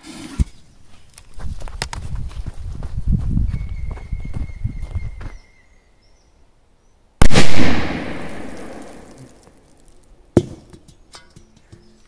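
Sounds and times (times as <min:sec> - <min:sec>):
firecracker bang with echo: 0:07.2 - 0:09.1.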